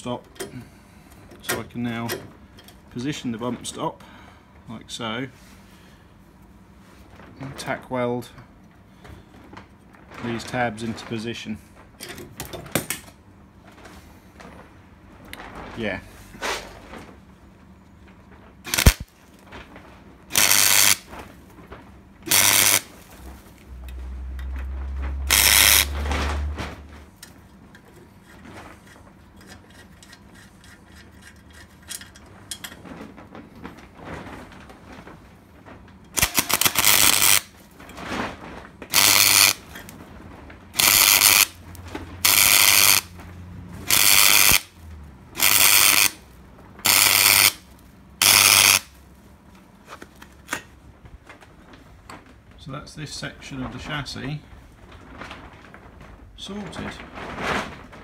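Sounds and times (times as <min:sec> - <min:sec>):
mig welding bursts: 0:18.6 - 0:19.2, 0:20.3 - 0:21.1, 0:22.2 - 0:22.9, 0:25.3 - 0:26.2, 0:36.2 - 0:37.5, 0:38.9 - 0:39.8, 0:40.8 - 0:43.1, 0:43.8 - 0:44.8, 0:45.4 - 0:49.0.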